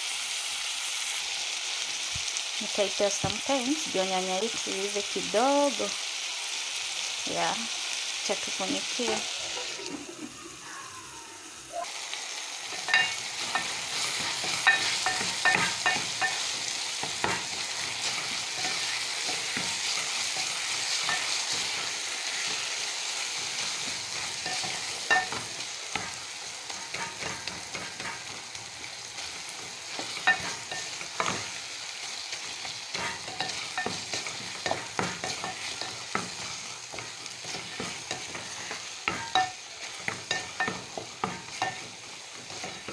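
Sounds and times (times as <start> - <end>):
food sizzling in metal pot: 0.0 - 42.9
spoon stirring and scraping: 12.7 - 22.7, 23.5 - 31.6, 32.3 - 42.9.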